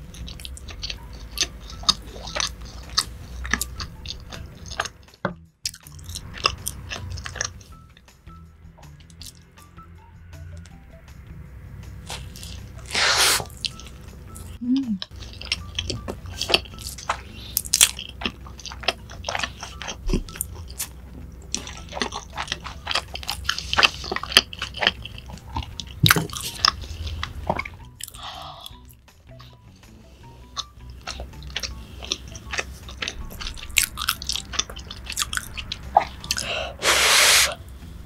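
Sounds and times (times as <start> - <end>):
biting and chewing: 0.0 - 8.0, 9.0 - 9.5, 12.0 - 37.4
low rumble: 6.0 - 12.9.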